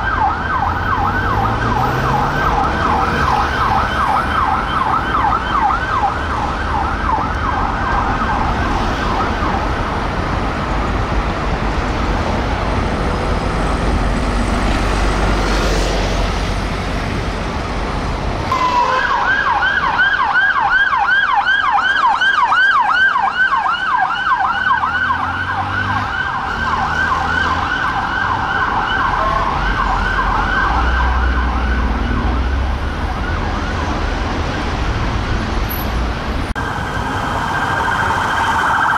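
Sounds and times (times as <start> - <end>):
police siren yelp: 0.0 - 10.1, 18.5 - 34.7, 36.6 - 38.9
traffic noise: 0.0 - 38.9.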